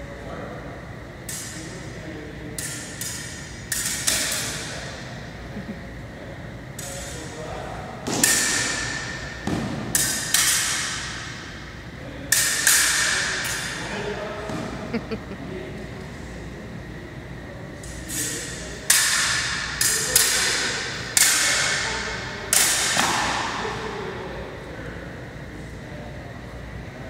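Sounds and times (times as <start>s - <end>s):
sabres clashing: 2.6s - 4.7s, 8.1s - 11.5s, 12.3s - 13.8s, 17.8s - 23.6s.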